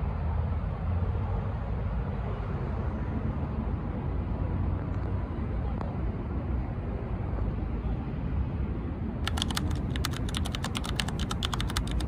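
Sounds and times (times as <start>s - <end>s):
low rumble of city traffic: 0.0s - 12.0s
keyboard typing clicks: 9.2s - 12.0s.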